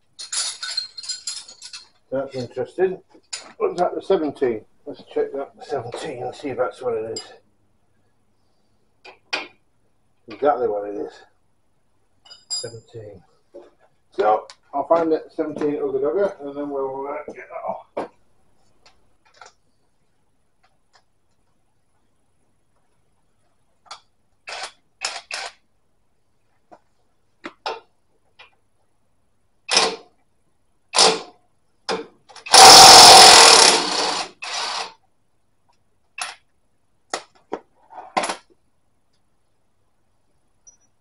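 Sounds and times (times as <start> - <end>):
impact wrench hammering: 32.5 - 34.9.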